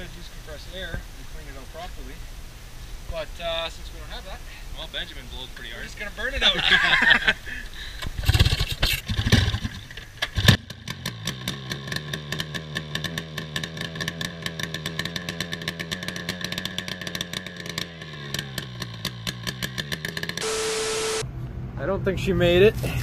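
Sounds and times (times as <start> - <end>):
snowmobile engine starting and idling: 6.5 - 21.2.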